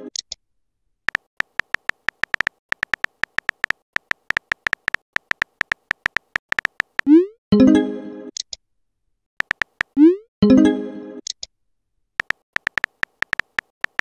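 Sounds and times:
phone keyboard taps: 0:01.1 - 0:07.1, 0:09.4 - 0:10.0, 0:12.2 - 0:14.0.

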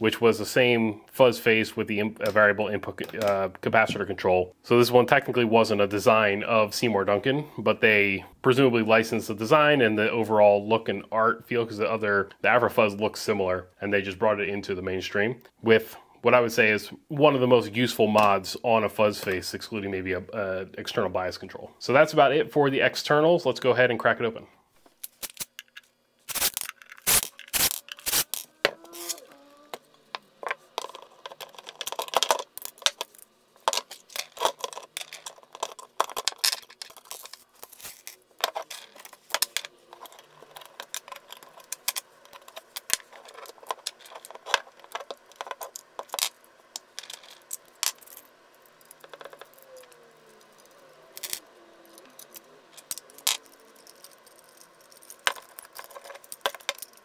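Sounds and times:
metal parts clicking and clinking: 0:25.0 - 0:57.0.

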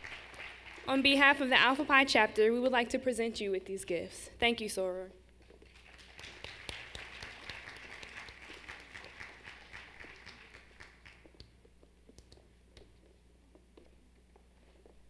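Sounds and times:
audience applauding: 0:00.0 - 0:01.5, 0:05.7 - 0:11.4.

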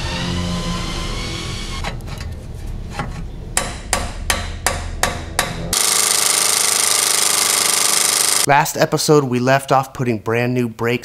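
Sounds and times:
power tool rattling: 0:05.7 - 0:08.5.

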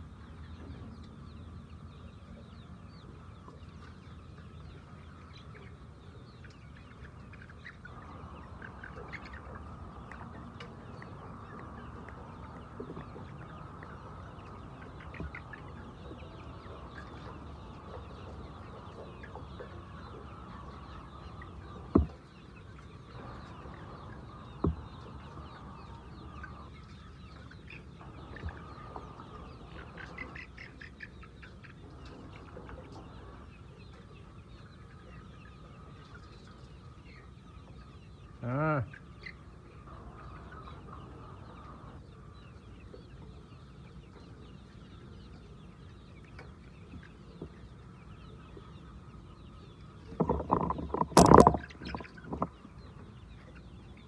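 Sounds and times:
chickens clucking: 0:00.0 - 0:54.0
sharp knocks: 0:21.9 - 0:22.2, 0:50.2 - 0:52.5.

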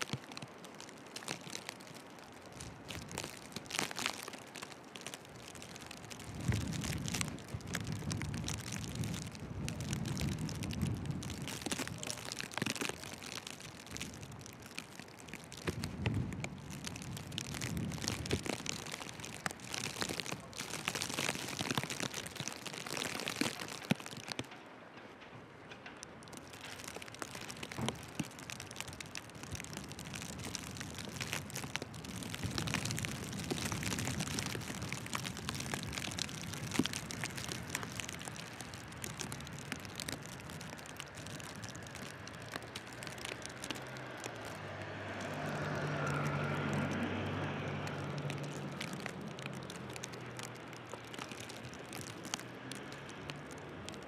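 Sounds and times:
car driving past in snow: 0:44.3 - 0:48.4.

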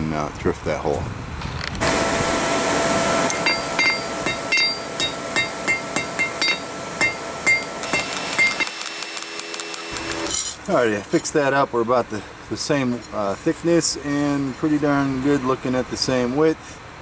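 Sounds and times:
hammer striking steel on anvil: 0:03.3 - 0:10.6.

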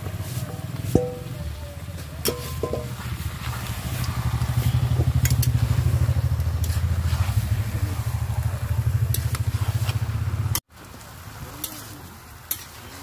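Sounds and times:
spatula clinking on metal pan: 0:02.3 - 0:03.0
small engine running: 0:03.6 - 0:09.4.

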